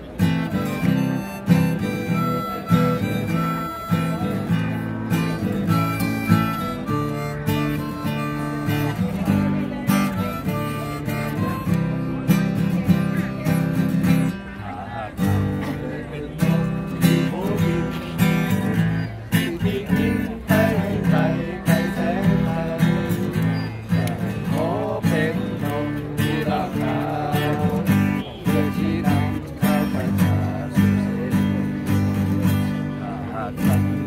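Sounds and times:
acoustic guitar strumming chords: 0:00.0 - 0:34.0
harmonica playing: 0:00.3 - 0:12.8.

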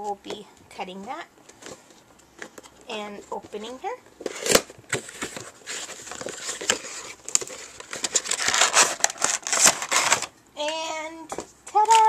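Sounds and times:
cardboard box rustling and crinkling: 0:01.5 - 0:10.3.

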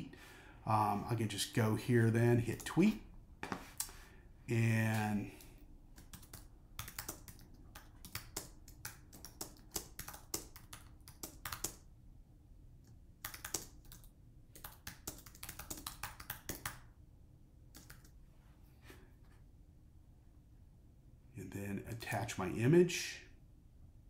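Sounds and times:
computer keyboard typing: 0:05.9 - 0:11.8, 0:13.2 - 0:16.8, 0:17.7 - 0:18.2.

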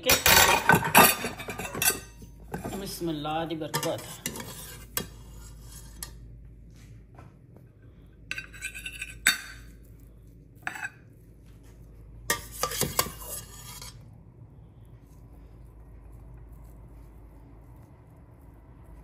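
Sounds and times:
metal spoon scraping and clinking: 0:00.0 - 0:06.2, 0:08.3 - 0:09.8, 0:10.6 - 0:11.1, 0:12.3 - 0:14.0.

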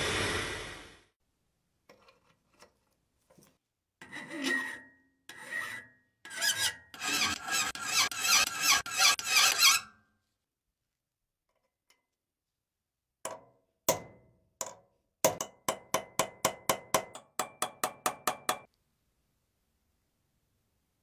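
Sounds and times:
hammer tapping on metal: 0:13.3 - 0:18.7.

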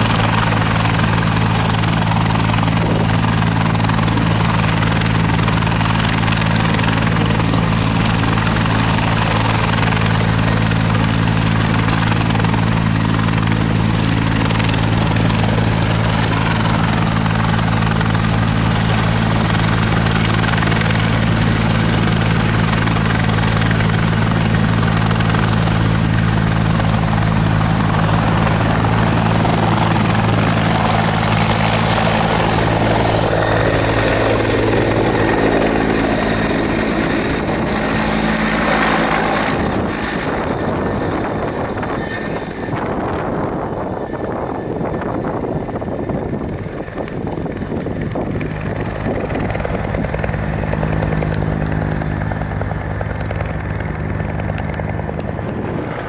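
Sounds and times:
helicopter rotor and engine: 0:00.0 - 0:56.0.

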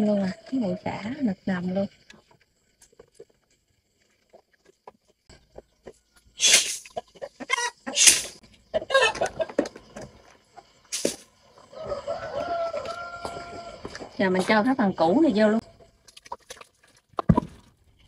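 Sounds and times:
chickens calling: 0:05.4 - 0:14.1.

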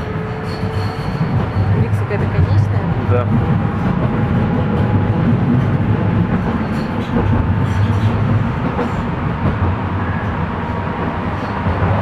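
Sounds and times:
metro train rumbling in tunnel: 0:00.0 - 0:12.0.

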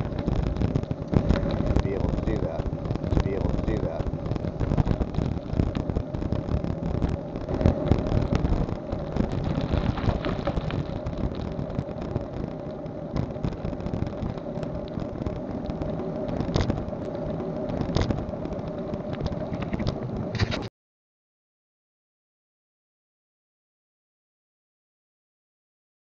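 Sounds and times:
faint hum: 0:00.0 - 0:20.7
low rumbling noise: 0:00.0 - 0:20.7
scattered clicks: 0:00.0 - 0:20.7.

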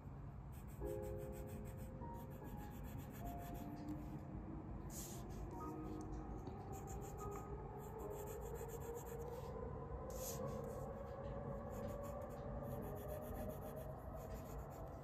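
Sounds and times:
pencil scratching on paper: 0:00.5 - 0:03.7, 0:06.7 - 0:09.4, 0:10.1 - 0:10.8, 0:11.7 - 0:15.0.

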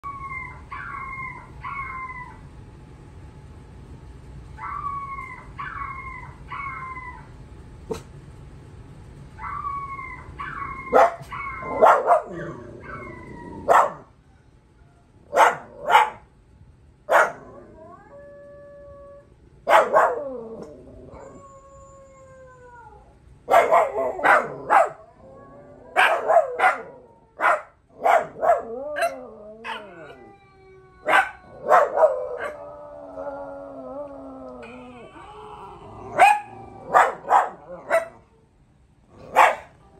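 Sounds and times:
recorded dog howls from tv: 0:00.0 - 0:02.4, 0:04.6 - 0:07.3, 0:09.4 - 0:14.1, 0:17.2 - 0:38.2
dogs howling: 0:00.0 - 0:02.5, 0:04.6 - 0:07.4, 0:09.4 - 0:14.1, 0:17.2 - 0:38.2
dogs barking: 0:09.4 - 0:14.1, 0:15.3 - 0:16.3, 0:17.1 - 0:17.5, 0:19.6 - 0:20.4, 0:23.5 - 0:25.0, 0:25.9 - 0:30.2, 0:31.0 - 0:32.6, 0:36.1 - 0:38.3, 0:39.2 - 0:39.8.

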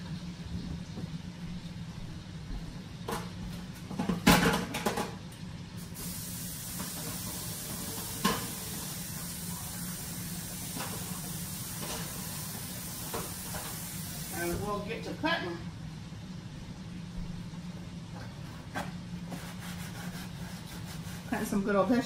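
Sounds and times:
kitchen items clattering: 0:03.0 - 0:05.2
food sizzling in a pot: 0:05.8 - 0:15.6.

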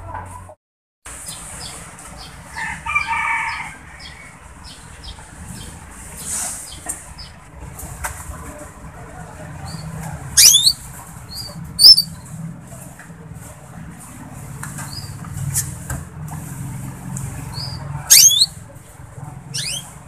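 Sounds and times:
canary chirps: 0:09.7 - 0:12.4, 0:17.3 - 0:18.7, 0:19.4 - 0:20.0
soft short peeps: 0:18.1 - 0:18.5.

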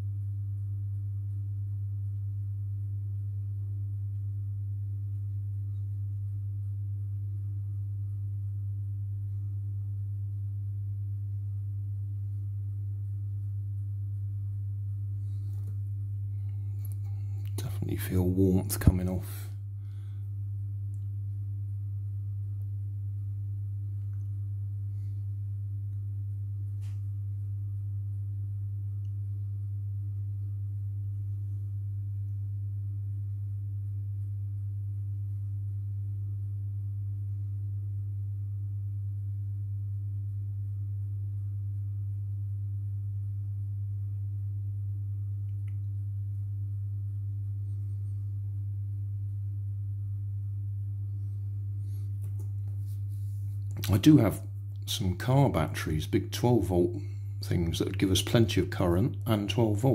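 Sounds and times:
low electrical hum: 0:00.0 - 0:59.9.

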